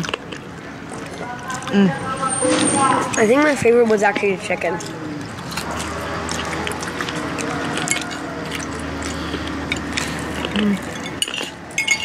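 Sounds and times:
chewing: 0.0s - 12.0s
murmur of voices: 0.0s - 12.0s
forks clicking against plates: 4.1s - 12.0s.

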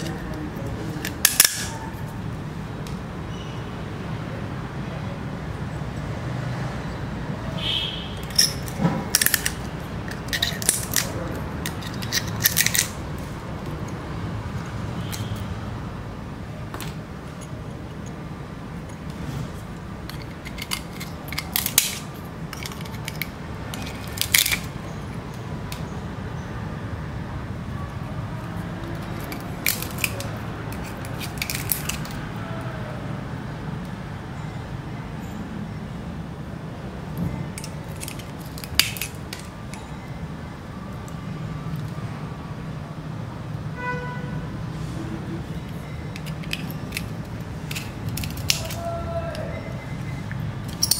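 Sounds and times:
pliers snapping seashell: 1.0s - 1.8s, 8.2s - 13.0s, 20.1s - 24.7s, 28.9s - 32.2s, 37.6s - 39.8s, 46.2s - 49.5s.

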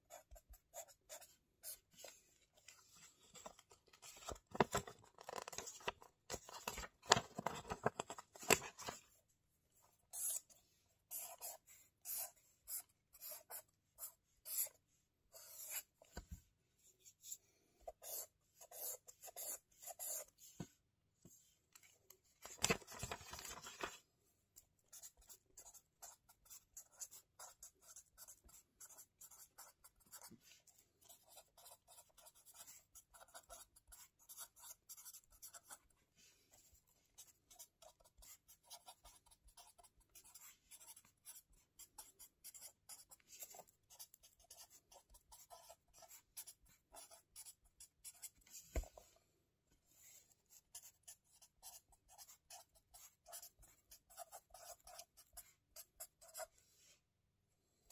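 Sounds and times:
pen scratching on paper: 0.0s - 2.2s, 10.0s - 16.1s, 17.2s - 20.4s, 24.9s - 35.9s, 36.6s - 48.9s, 50.1s - 56.6s.

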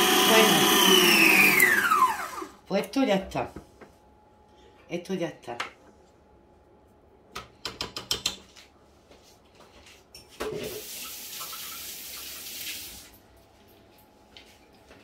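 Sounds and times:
kitchen tap running: 10.6s - 13.2s.

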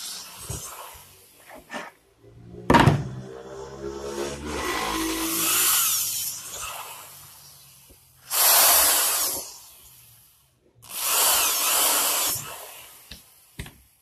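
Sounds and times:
electric drill boring: 0.0s - 1.4s, 4.5s - 13.9s.

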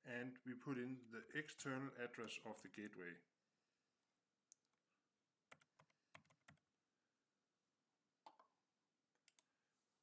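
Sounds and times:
computer keyboard keystrokes: 5.5s - 6.6s.

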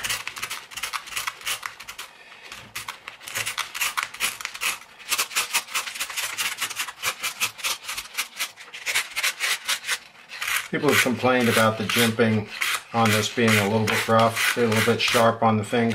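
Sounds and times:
emery cloth rasping on metal: 3.3s - 15.3s.

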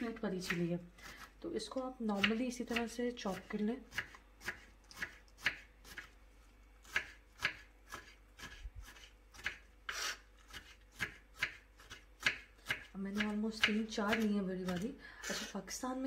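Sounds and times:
knife slicing pepper on board: 2.1s - 6.2s, 6.8s - 15.5s.

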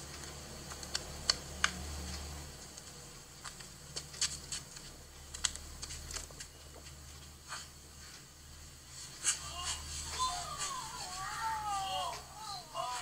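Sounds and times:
light clicks and taps: 0.0s - 7.0s.

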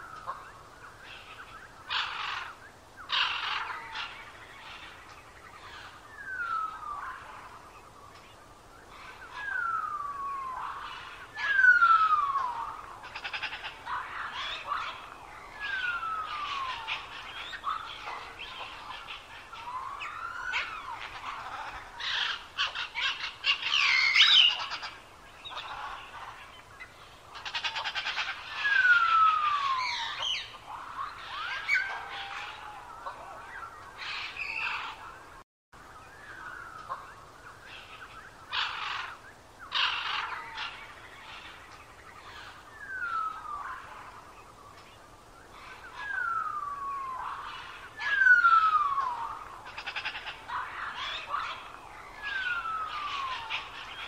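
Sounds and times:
birds chirping and trilling: 0.0s - 54.0s.

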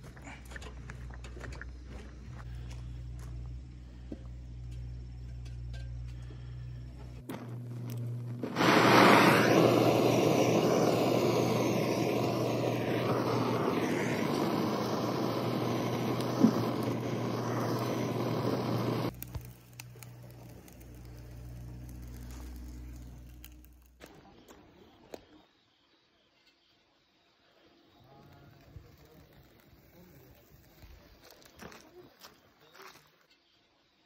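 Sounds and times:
gas torch hissing: 6.2s - 24.0s.

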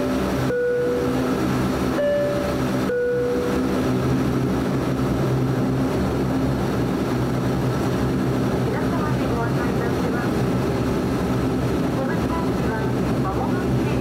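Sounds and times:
two-tone cabin chime: 0.0s - 3.8s
turboprop engine cabin drone: 0.0s - 14.0s.

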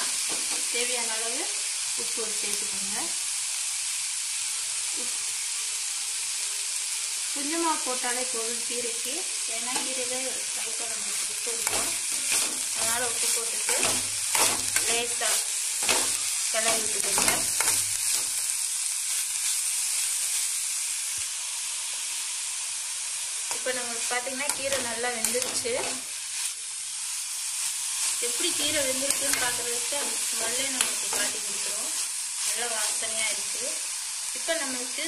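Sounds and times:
greens sizzling in oil: 0.0s - 35.0s
steel spoon scraping pan: 11.6s - 18.4s.

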